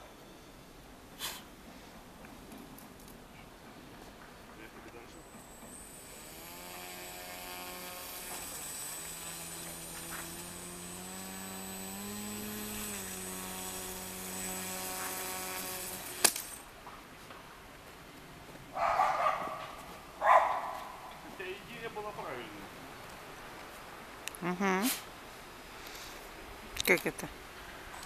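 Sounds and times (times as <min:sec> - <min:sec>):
electric motor whining: 0:05.0 - 0:16.7.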